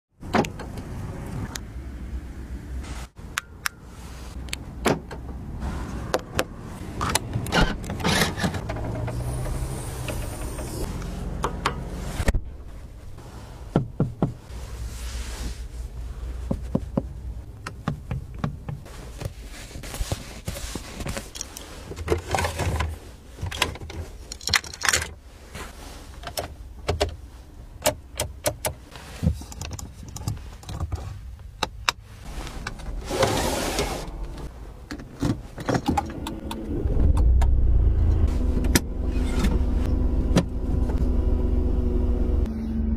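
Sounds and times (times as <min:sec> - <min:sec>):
car engine starting and running: 0:00.2 - 0:19.4, 0:21.0 - 0:42.9
car control clicks and taps: 0:16.5 - 0:18.8.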